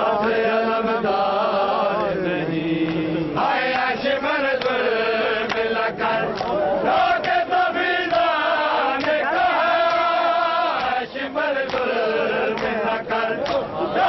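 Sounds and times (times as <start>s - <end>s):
men chanting in unison: 0.0s - 14.0s
hands slapping chests: 2.8s - 3.1s, 4.6s - 4.8s, 5.4s - 6.6s, 7.2s - 13.7s.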